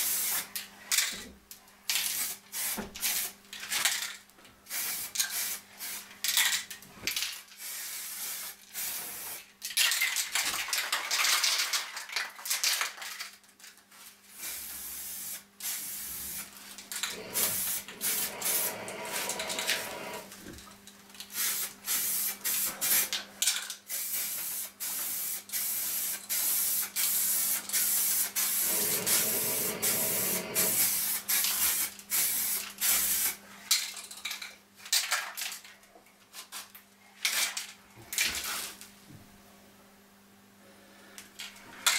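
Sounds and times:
spray paint hissing in bursts: 0:00.0 - 0:00.6, 0:01.9 - 0:03.4, 0:04.7 - 0:06.1, 0:07.6 - 0:09.5, 0:14.3 - 0:20.3, 0:21.3 - 0:23.2, 0:23.8 - 0:33.4
steady low hum: 0:16.3 - 0:20.6, 0:28.6 - 0:31.0.

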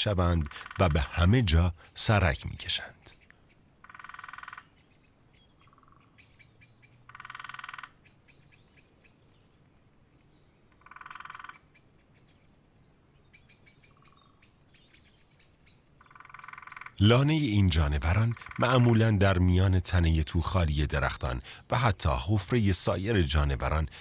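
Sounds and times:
faint high bird chirps: 0:03.1 - 0:17.0
frog trilling: 0:03.8 - 0:04.7, 0:07.1 - 0:08.0, 0:10.7 - 0:11.7, 0:16.0 - 0:17.4, 0:18.0 - 0:19.1.

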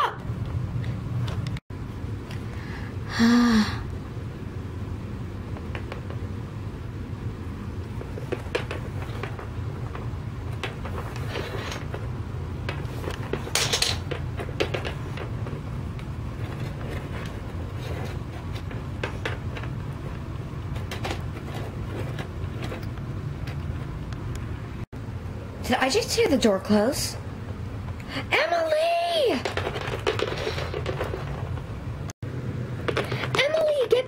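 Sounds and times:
steady low hum: 0:00.0 - 0:33.8
noisy handling sound: 0:05.2 - 0:25.0, 0:29.1 - 0:34.0
plastic figurines tapping on wood: 0:29.4 - 0:31.3.

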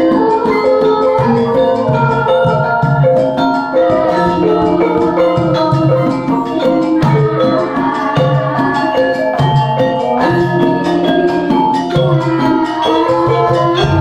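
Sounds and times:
gamelan metallophones ringing: 0:00.0 - 0:14.0
hand drum beats: 0:00.0 - 0:14.0.

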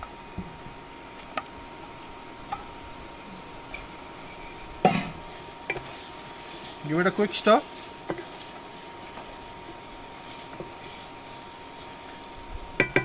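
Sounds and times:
spatula stirring thick paste: 0:03.8 - 0:13.0
spatula knocking metal pot: 0:12.8 - 0:13.0.

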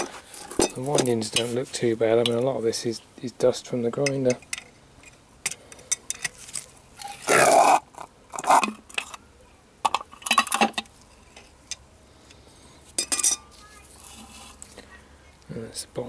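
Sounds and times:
metal clanking and scraping: 0:13.0 - 0:14.6.

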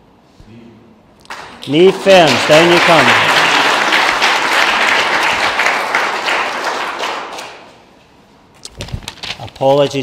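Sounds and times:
audience applauding: 0:01.2 - 0:07.8.

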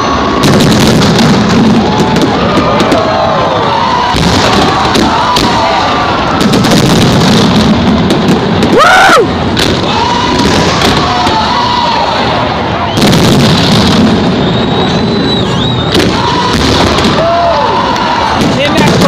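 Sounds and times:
crowd cheering: 0:00.0 - 0:19.0
fireworks bangs and crackling: 0:00.0 - 0:19.0
rising and falling whoop: 0:01.7 - 0:06.6, 0:08.7 - 0:13.0, 0:14.6 - 0:18.4.

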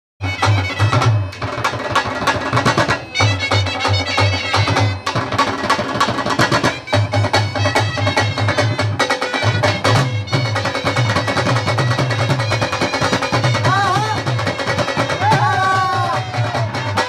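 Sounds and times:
drums beaten with sticks: 0:00.2 - 0:17.0
double-reed pipes playing melody: 0:02.2 - 0:17.0.

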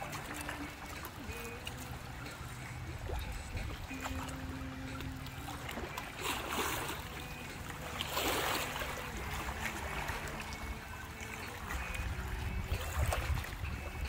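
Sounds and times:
small waves splashing on rocks: 0:00.0 - 0:13.8
wind rumble on microphone: 0:02.0 - 0:05.6, 0:11.6 - 0:14.0.

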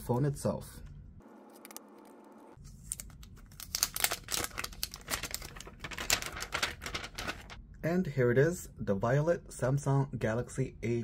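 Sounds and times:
packaging crinkling: 0:02.7 - 0:07.6.

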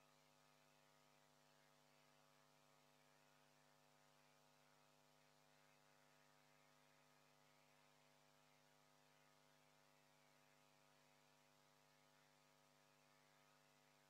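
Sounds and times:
faint mains hum: 0:00.0 - 0:14.0.

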